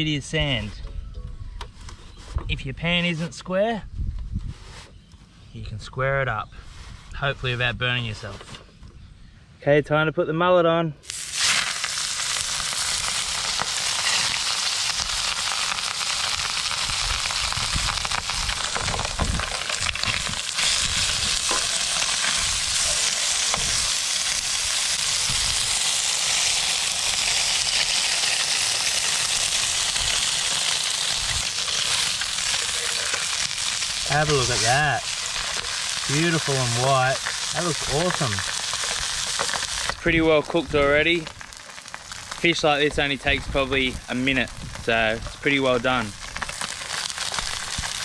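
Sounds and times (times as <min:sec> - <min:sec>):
fish frying in hot oil: 0:11.1 - 0:48.0.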